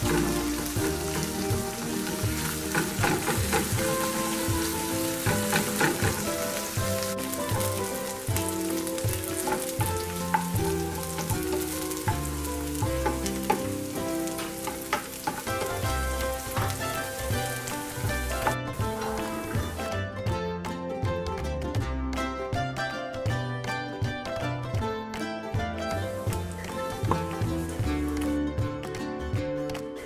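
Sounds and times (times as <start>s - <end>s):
spatula scraping a pan: 0.0s - 6.8s
onions sizzling in oil: 0.0s - 19.8s
background music: 0.0s - 30.0s.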